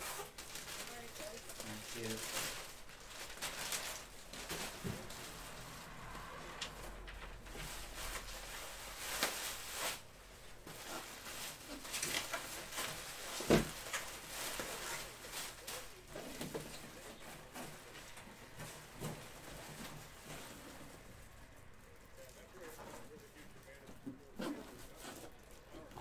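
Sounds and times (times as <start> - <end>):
packaging rustling: 0.0 - 6.2, 6.8 - 21.2.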